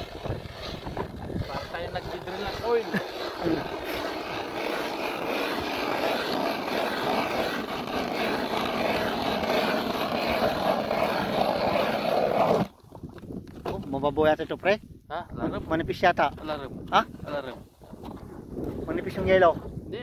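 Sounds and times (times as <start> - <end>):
ice auger grinding: 0.0 - 12.8.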